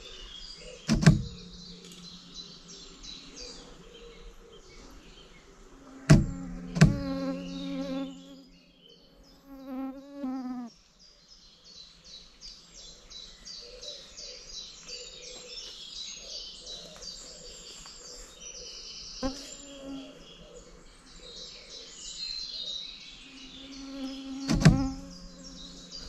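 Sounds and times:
insects chirping: 0.8 - 8.6
low humming tone: 1.2 - 5.2, 5.8 - 8.8, 24.7 - 26.0.

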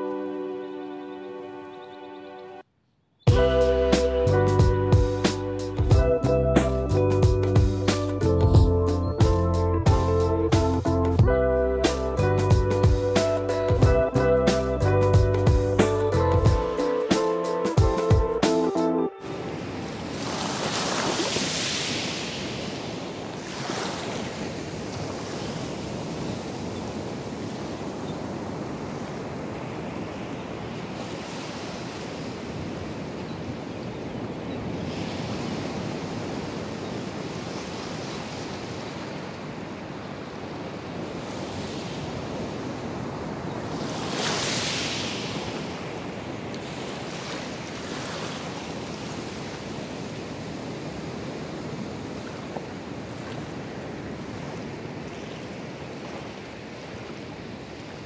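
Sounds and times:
surf washing up sand: 19.2 - 58.0.

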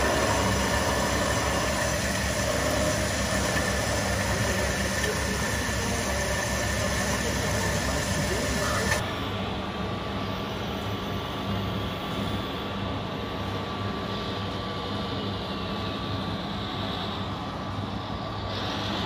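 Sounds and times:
model truck electric motors whining: 0.0 - 9.0.

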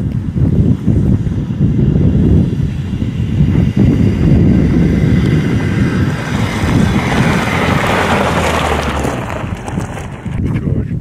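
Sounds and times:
wind rumbling on microphone: 0.0 - 11.0
car engine passing by: 2.6 - 10.5
tyres on gravel: 4.7 - 11.0.

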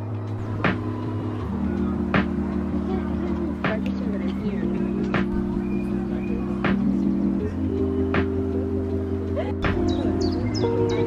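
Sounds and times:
sustained chords music: 0.0 - 11.0
sharp beat: 0.4 - 1.0.

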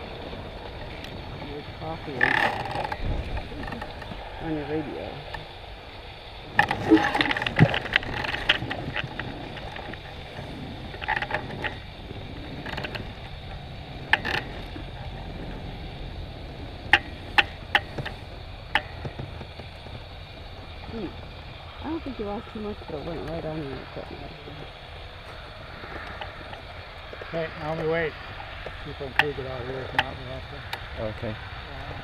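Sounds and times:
low steady background noise: 0.0 - 32.0
balloon basket creaking: 0.7 - 5.5, 6.5 - 21.4.

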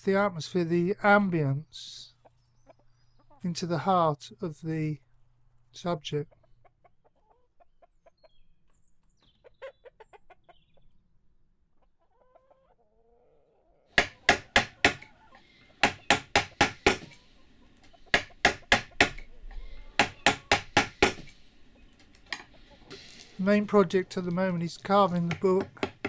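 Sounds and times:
mallet striking chisel into wood: 14.0 - 15.0, 15.8 - 17.1, 18.1 - 19.2, 20.0 - 21.3, 25.3 - 26.0.

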